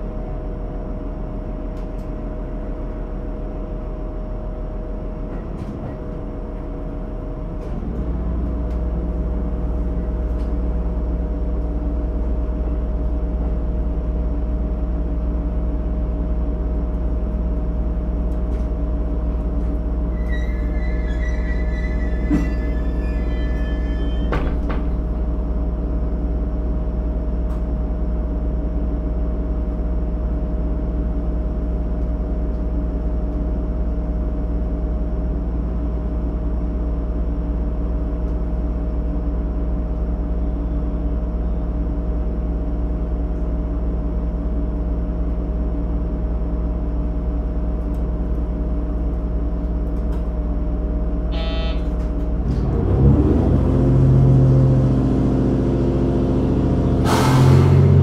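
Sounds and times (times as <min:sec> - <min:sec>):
brief high beep: 0:51.3 - 0:51.9.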